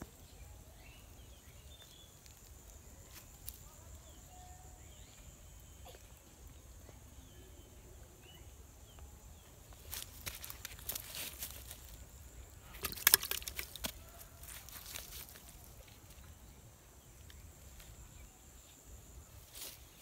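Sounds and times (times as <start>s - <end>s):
dry leaves and twigs rustling: 1.7s - 4.2s, 9.6s - 16.6s, 17.2s - 20.0s.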